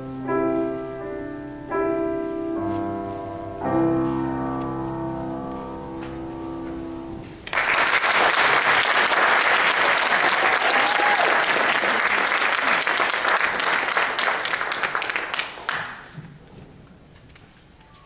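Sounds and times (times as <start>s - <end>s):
piano chord: 0.0s - 7.4s
audience applause: 7.4s - 16.2s.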